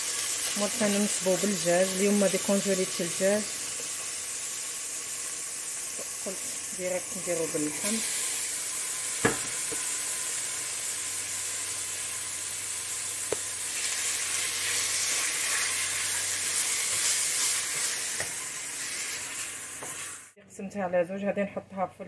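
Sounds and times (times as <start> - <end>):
onion and meat sizzling: 0.0 - 20.4
sharp knock: 9.2 - 9.6.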